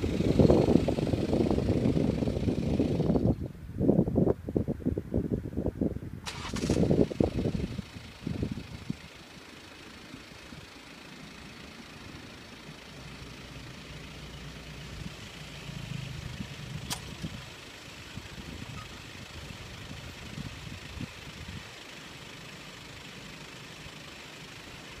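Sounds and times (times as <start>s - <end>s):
car engine idling: 0.0s - 3.6s, 6.2s - 25.0s
sharp click: 16.9s - 17.3s.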